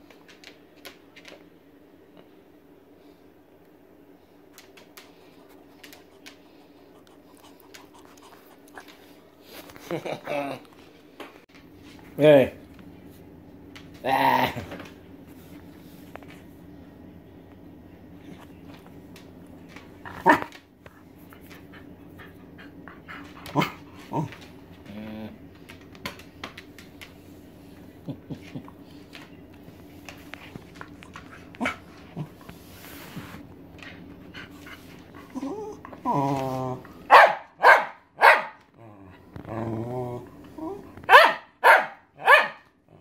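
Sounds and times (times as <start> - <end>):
dog whining moan: 35.2 - 36.9, 38.8 - 41.0
dog barking sharply: 37.1 - 38.6, 41.1 - 42.6.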